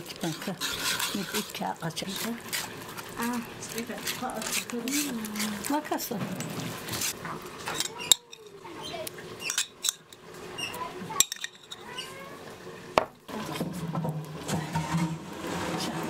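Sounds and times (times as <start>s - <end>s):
dishes and cutlery clinking: 0.0s - 8.6s, 9.4s - 12.1s.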